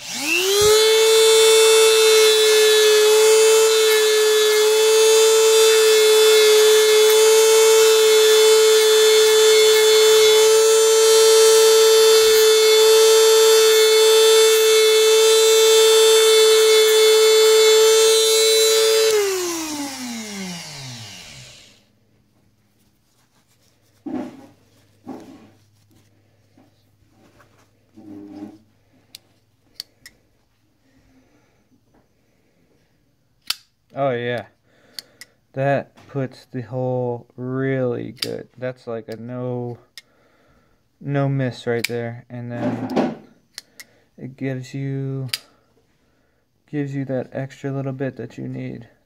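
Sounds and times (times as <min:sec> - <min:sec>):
rotary tool sanding drum whine: 0:00.0 - 0:21.8.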